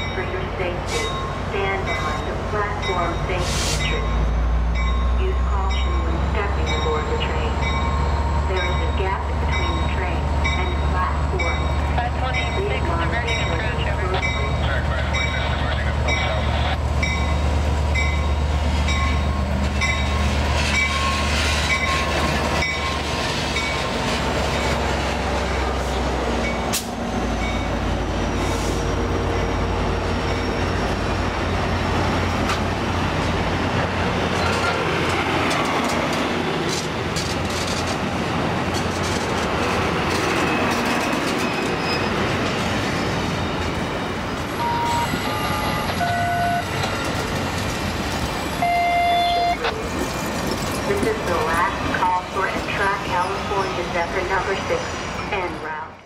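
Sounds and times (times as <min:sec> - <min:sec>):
train wheels on rails: 0:00.0 - 0:55.8
diesel locomotive engine droning: 0:00.0 - 0:56.0
wheel squeals: 0:40.1 - 0:43.8.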